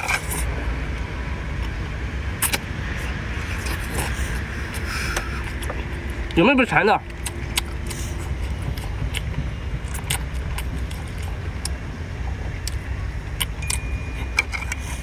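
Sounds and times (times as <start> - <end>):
steady low rumble: 0.0 - 15.0
chewing and mouth smacks: 2.4 - 6.4, 7.1 - 11.8, 12.5 - 15.0.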